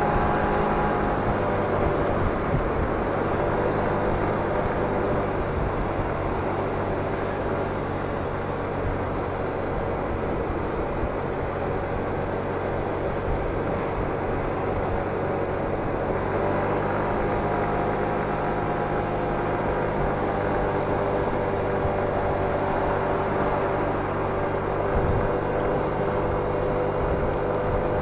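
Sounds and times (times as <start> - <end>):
scooter engine running: 0.0 - 28.0
wind and road noise: 0.0 - 28.0.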